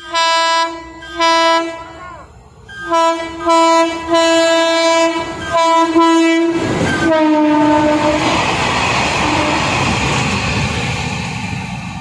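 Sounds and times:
train air horn blasts: 0.0s - 8.4s, 9.2s - 9.7s.

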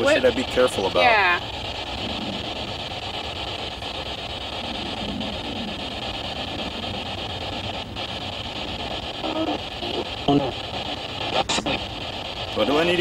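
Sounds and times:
faint radio fragments: 0.0s - 13.0s
radio static hiss: 0.0s - 13.0s.

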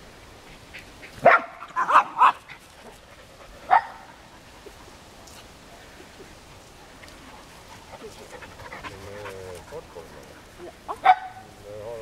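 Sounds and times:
dog barking: 1.2s - 2.4s, 3.7s - 4.0s, 10.9s - 11.5s.

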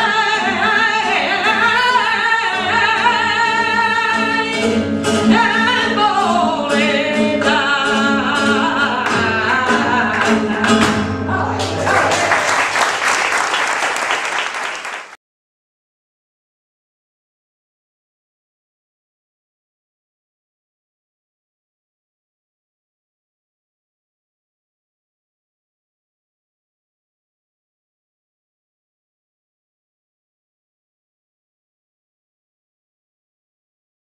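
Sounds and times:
woman singing with held notes: 0.0s - 11.6s
guitar accompaniment: 0.0s - 14.9s
audience applause: 11.4s - 15.2s.

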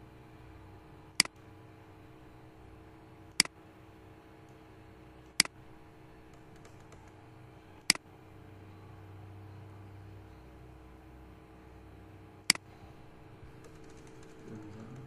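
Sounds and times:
low steady hum: 0.0s - 15.0s
computer mouse clicks: 6.3s - 7.2s.

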